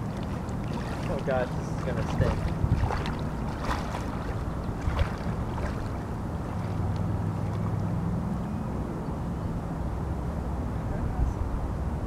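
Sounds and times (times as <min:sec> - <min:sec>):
wind on microphone: 0:00.0 - 0:07.8
distant motor humming: 0:00.0 - 0:08.6.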